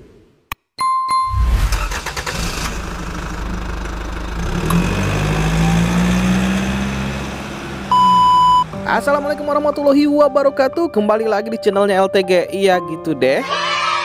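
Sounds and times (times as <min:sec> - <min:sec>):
engine running and revving: 0:01.8 - 0:09.5.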